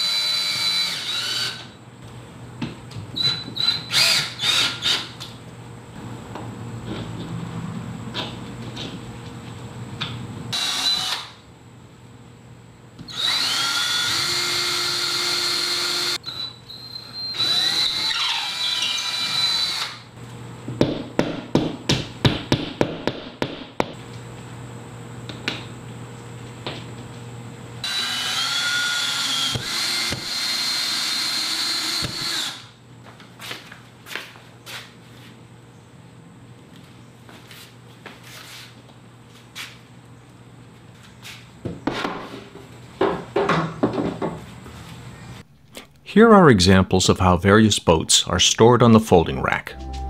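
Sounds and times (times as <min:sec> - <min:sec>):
cordless drill whining: 0:00.0 - 0:01.7, 0:03.2 - 0:05.1, 0:10.5 - 0:11.4, 0:13.1 - 0:20.0, 0:27.8 - 0:32.7.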